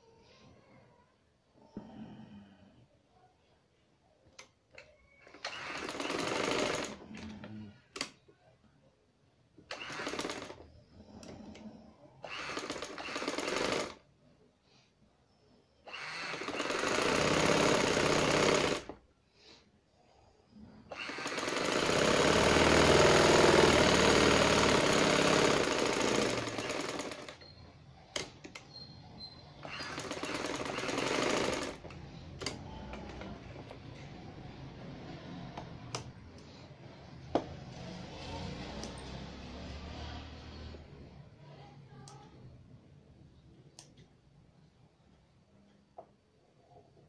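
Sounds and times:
sewing machine stitching: 0:05.2 - 0:08.1, 0:09.6 - 0:11.6, 0:12.2 - 0:14.1, 0:15.9 - 0:19.0, 0:20.9 - 0:28.8, 0:29.6 - 0:34.1.

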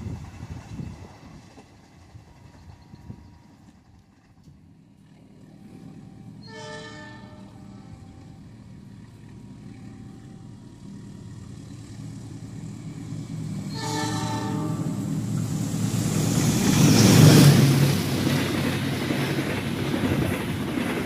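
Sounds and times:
locomotive engine rumble: 0:00.0 - 0:21.0
locomotive horn blast: 0:06.4 - 0:08.0, 0:13.7 - 0:15.2.

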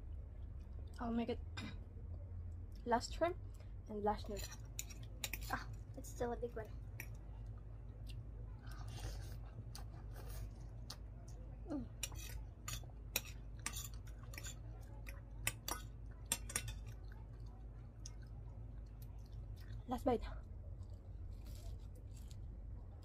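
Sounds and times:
low steady hum: 0:00.0 - 0:23.0
chewing: 0:06.9 - 0:22.5
cutlery clinking on a plate: 0:15.5 - 0:17.0.

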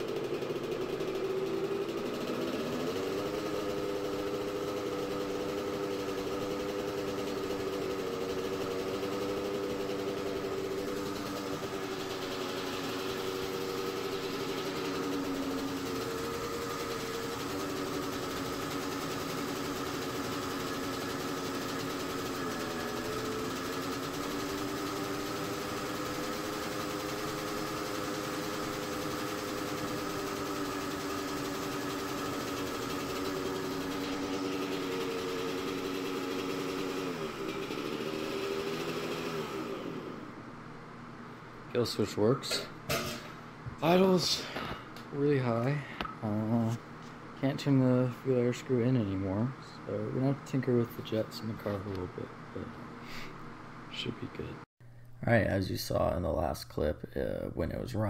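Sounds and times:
two-stroke engine idling high: 0:00.0 - 0:40.6.

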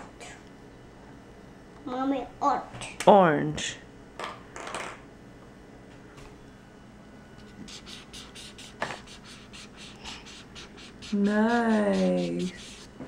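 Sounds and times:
marker scribbling on paper: 0:07.6 - 0:12.9.

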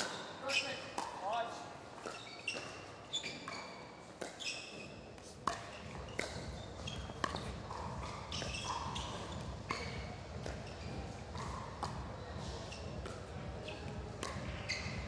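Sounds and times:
crowd and hall background: 0:00.0 - 0:15.0
shoes squeaking on court: 0:00.0 - 0:15.0
paddles hitting plastic ball: 0:05.2 - 0:15.0.

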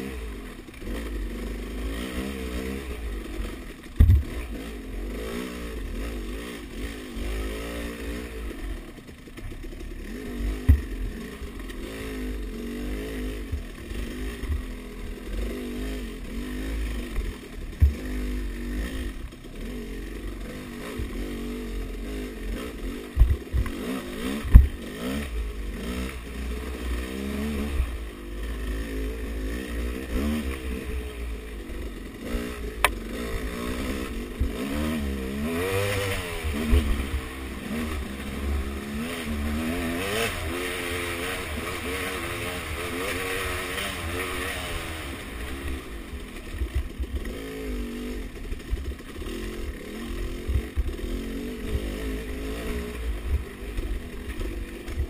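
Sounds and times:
dirt bike engine revving: 0:00.0 - 0:55.0
sharp thumps from bumps: 0:04.0 - 0:04.5, 0:10.5 - 0:11.8, 0:17.1 - 0:18.2, 0:23.1 - 0:24.8.

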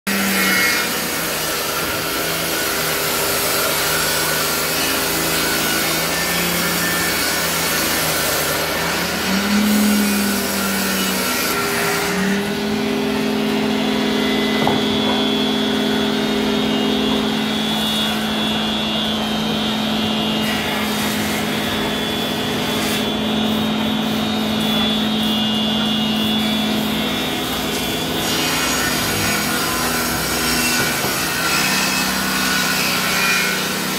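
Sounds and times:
hand saw cutting wood: 0:00.1 - 0:19.1, 0:19.9 - 0:33.9
steady droning hum: 0:11.6 - 0:29.7.

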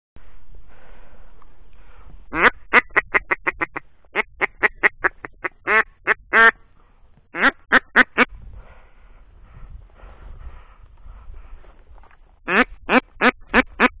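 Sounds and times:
duck quacking loudly: 0:02.3 - 0:06.6, 0:07.3 - 0:08.3, 0:12.5 - 0:14.0.

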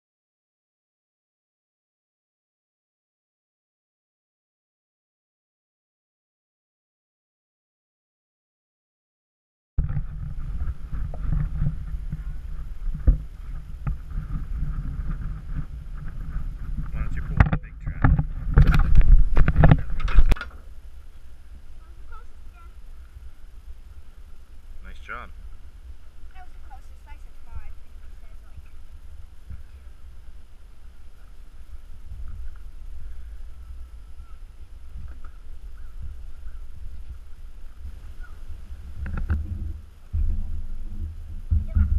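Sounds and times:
wind buffeting microphone: 0:09.8 - 0:41.9.

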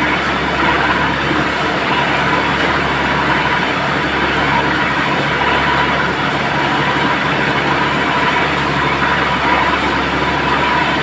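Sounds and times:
drilling rig running: 0:00.0 - 0:11.0
water gushing: 0:00.0 - 0:11.0.

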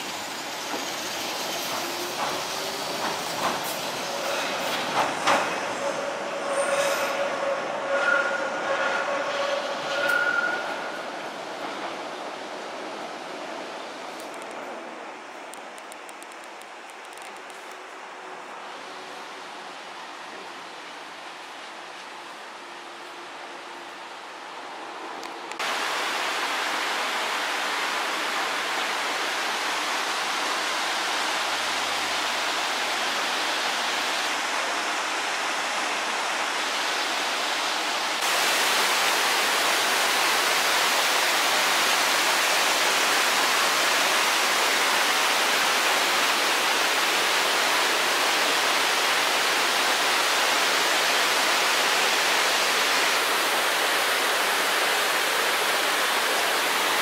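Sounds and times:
running water rushing: 0:25.6 - 0:57.0.

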